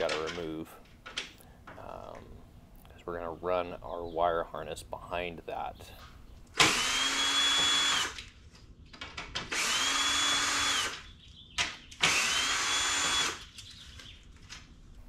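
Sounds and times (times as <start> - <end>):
cordless drill whirring: 6.6 - 8.3, 9.5 - 11.0, 12.0 - 13.5.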